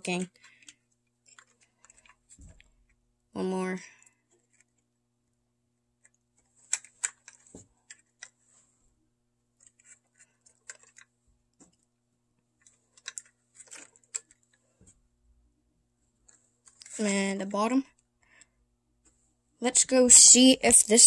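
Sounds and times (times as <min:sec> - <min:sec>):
light clicks and taps of model: 0:12.6 - 0:14.6.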